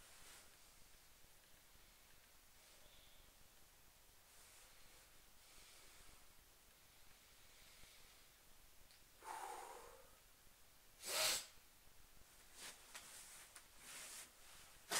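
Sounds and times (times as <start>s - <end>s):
man breathing: 9.2s - 10.2s
man snorting through nose: 11.0s - 11.6s.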